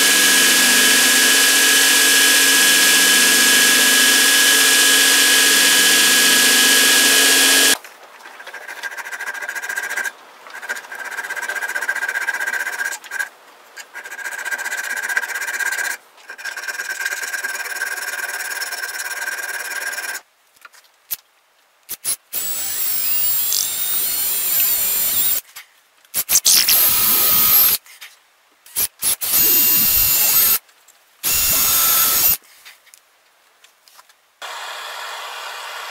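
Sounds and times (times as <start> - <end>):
belt grinder grinding: 0.0 - 7.8, 22.4 - 25.4, 31.2 - 32.4.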